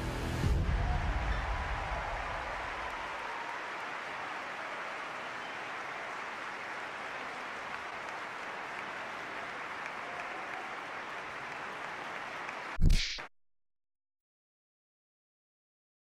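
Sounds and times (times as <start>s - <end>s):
audience applauding: 0.4s - 12.8s.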